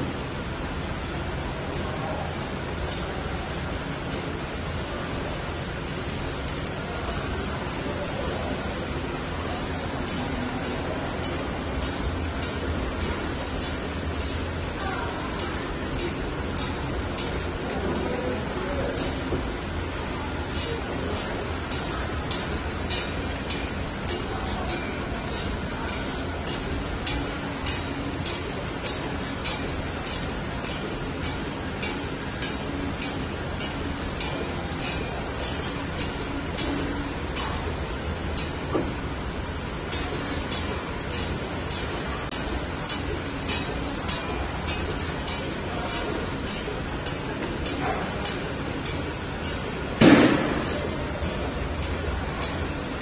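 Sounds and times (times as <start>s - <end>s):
sharp machine clicks: 39.9s - 53.0s
loud burst of noise: 50.0s - 50.7s.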